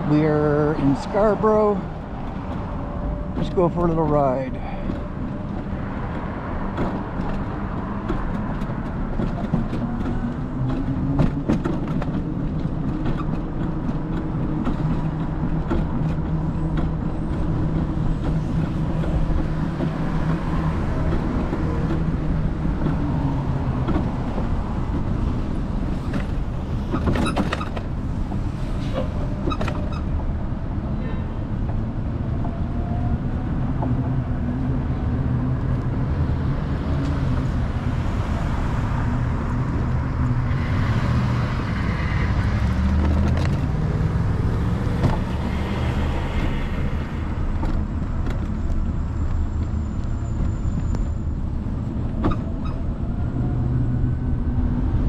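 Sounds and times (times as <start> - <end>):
car engine and road noise: 0.0 - 55.0
sharp clicks and knocks: 4.8 - 25.5.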